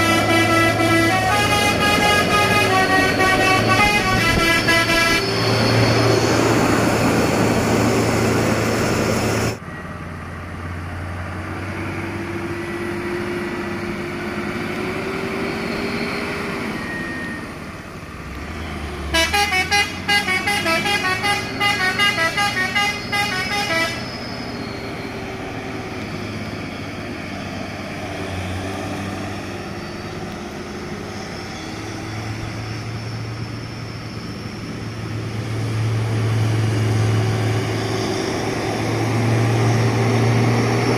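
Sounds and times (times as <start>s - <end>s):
multi-tone horn tune: 0.0s - 5.4s, 19.1s - 24.1s
diesel truck engine running: 0.0s - 40.9s.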